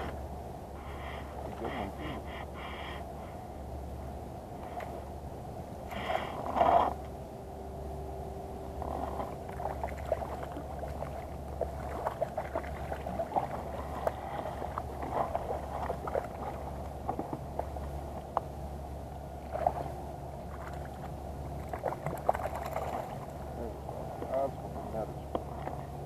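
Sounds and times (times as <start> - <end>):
fish thrashing in water: 9.2 - 17.8, 19.4 - 23.5
water splashing: 9.3 - 17.8, 19.4 - 23.4.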